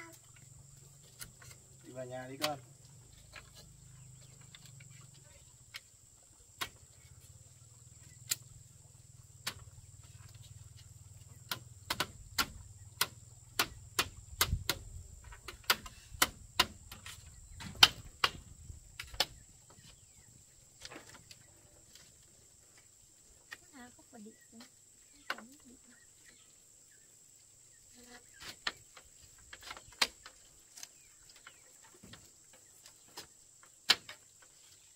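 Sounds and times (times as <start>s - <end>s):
tool knocking on bamboo: 11.4s - 19.4s.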